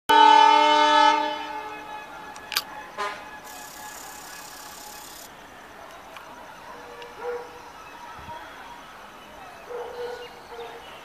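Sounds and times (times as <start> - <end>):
locomotive horn blast: 0.1 - 3.9.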